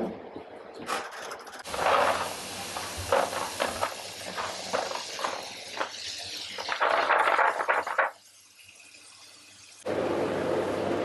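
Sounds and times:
beans clattering in plastic tub: 1.6s - 8.2s
tap water running into tub: 1.6s - 9.8s.

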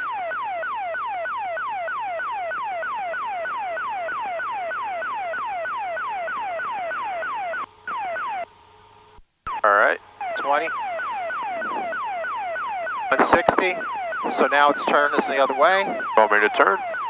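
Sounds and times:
falling swept radio tone: 9.5s - 17.0s.

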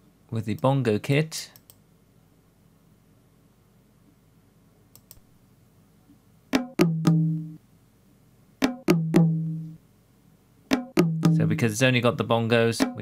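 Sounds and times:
faint mouse clicks: 1.6s - 1.8s, 4.9s - 5.3s
bongo hits: 6.6s - 7.6s, 8.6s - 9.8s, 10.7s - 11.6s, 12.8s - 13.0s.

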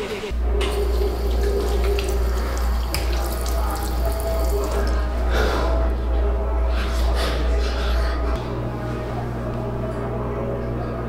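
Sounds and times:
water running into sink: 0.6s - 5.0s.

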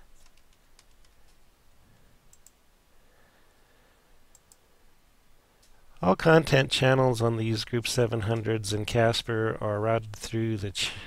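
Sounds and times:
mouse and keyboard clicks: 0.2s - 1.4s.

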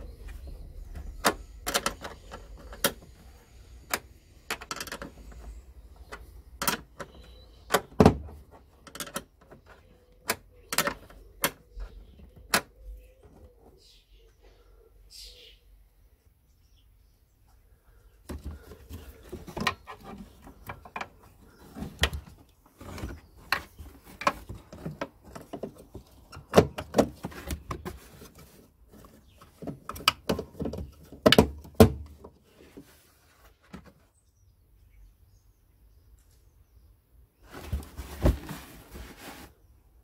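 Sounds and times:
handling noise: 37.4s - 39.6s.

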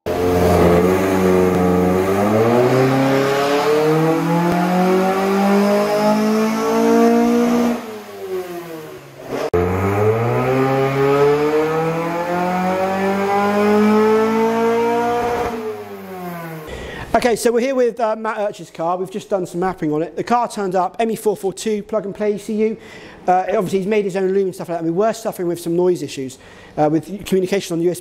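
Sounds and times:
car engine revving: 0.0s - 16.7s.

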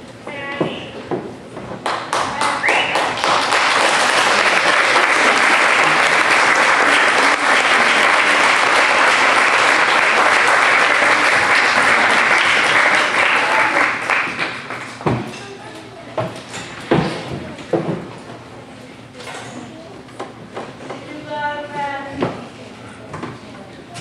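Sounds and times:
theatre audience applauding: 1.8s - 15.0s.

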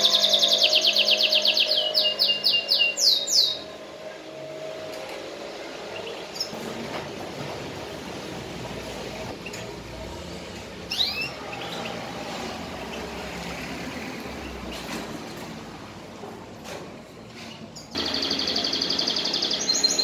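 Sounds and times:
canary call: 0.0s - 3.7s.

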